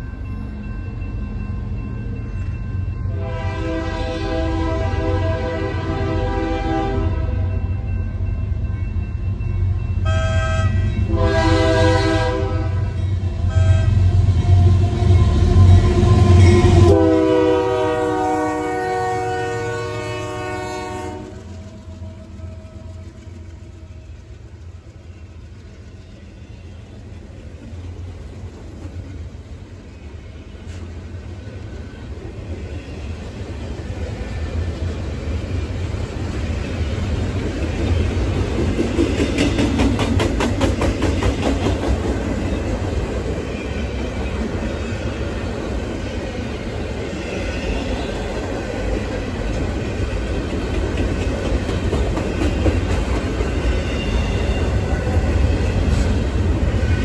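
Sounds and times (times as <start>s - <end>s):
low train rumble: 0.0s - 57.0s
train horn blasts: 3.1s - 7.5s, 10.0s - 23.0s.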